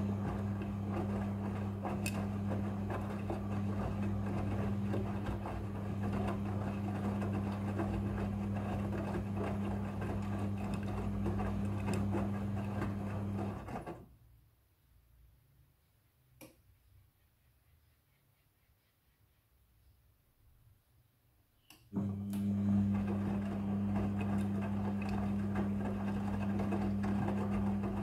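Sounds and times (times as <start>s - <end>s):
washing machine motor hum: 0.0s - 14.2s, 21.9s - 28.0s.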